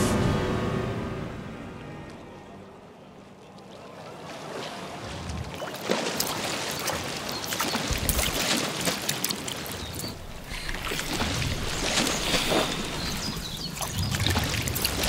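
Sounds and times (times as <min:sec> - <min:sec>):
water splashing around swimmer: 0:03.0 - 0:15.0.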